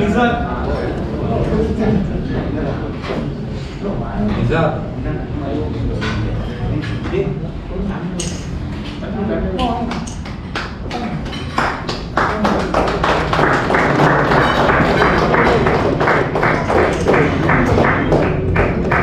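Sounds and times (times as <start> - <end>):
group of people clapping: 9.6 - 19.0.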